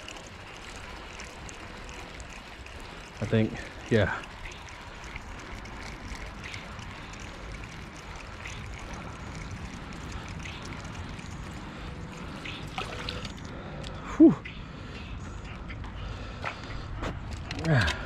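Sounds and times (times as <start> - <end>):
river water flowing: 0.0 - 13.9.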